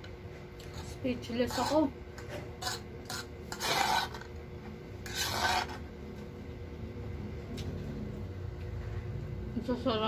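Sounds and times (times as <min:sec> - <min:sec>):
fork scraping a food tray: 0:00.6 - 0:04.4, 0:05.0 - 0:05.9.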